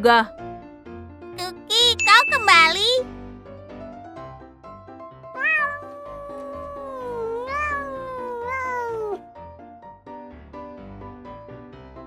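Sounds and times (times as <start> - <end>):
background music: 0.0 - 12.0
cat meowing: 5.4 - 9.2.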